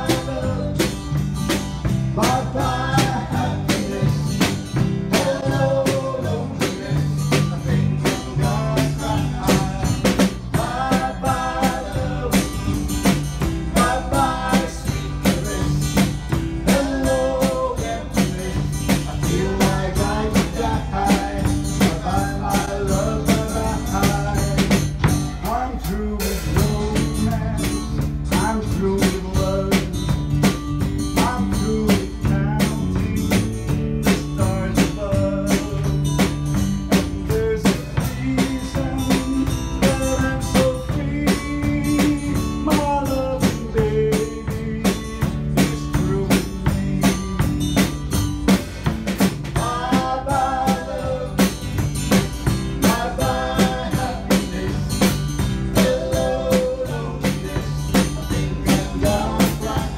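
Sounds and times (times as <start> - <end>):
person singing: 0.0 - 0.8, 49.6 - 51.6, 52.8 - 59.9
drum beat: 0.0 - 25.6, 26.4 - 59.9
bass line: 0.0 - 59.9.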